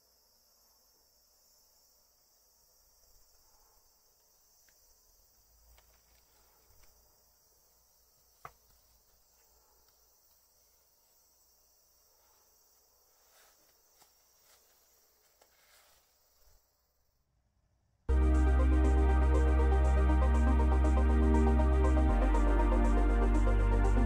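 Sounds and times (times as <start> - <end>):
faint high hiss: 0.0 - 17.2.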